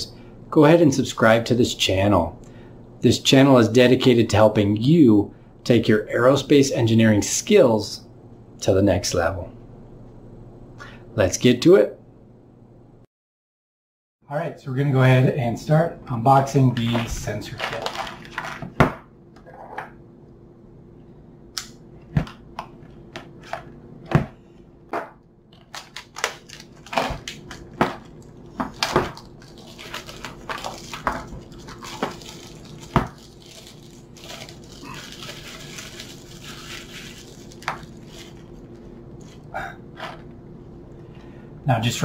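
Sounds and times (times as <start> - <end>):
plastic crinkling: 16.8 - 18.6, 25.5 - 39.5.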